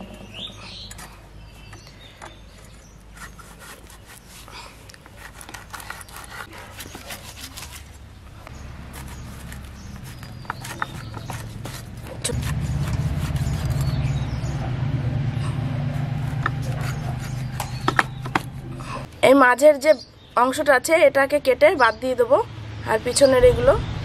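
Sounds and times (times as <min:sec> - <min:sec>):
blade cutting fruit: 0:03.1 - 0:14.6, 0:15.5 - 0:18.9
steady low hum: 0:07.8 - 0:19.2.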